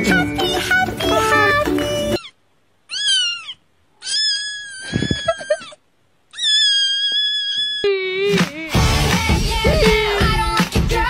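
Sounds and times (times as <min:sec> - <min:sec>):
cat meowing: 0:01.0 - 0:08.2.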